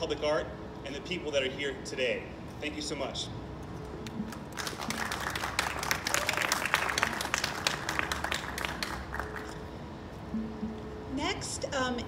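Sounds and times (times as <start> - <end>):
audience applauding: 4.3 - 9.6.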